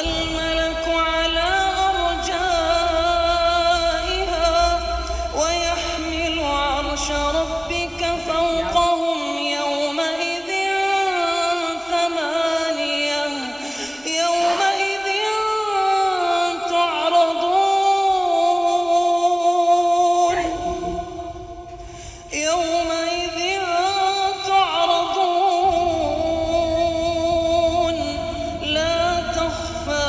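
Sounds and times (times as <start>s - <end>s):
low rumble: 0.0s - 9.2s, 20.3s - 30.0s
person chanting recitation: 0.0s - 30.0s.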